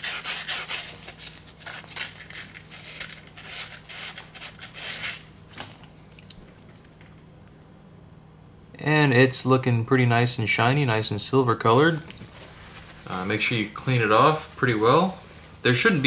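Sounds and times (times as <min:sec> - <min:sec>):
sandpaper rasping on metal: 0:00.0 - 0:01.0.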